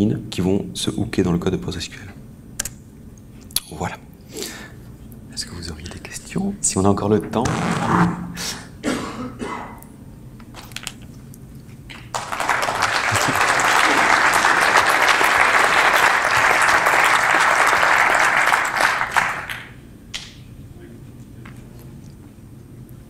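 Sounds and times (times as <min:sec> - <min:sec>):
audience applauding: 0:12.1 - 0:19.7.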